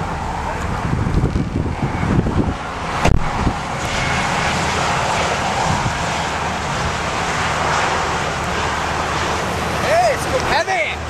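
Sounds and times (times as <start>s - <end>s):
passing highway traffic: 0.0s - 11.0s
wind roar: 0.0s - 11.0s.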